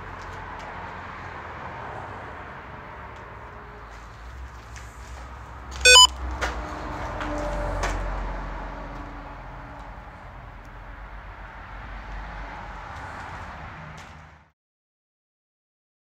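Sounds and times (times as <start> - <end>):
loud electronic beep: 5.9 - 6.1.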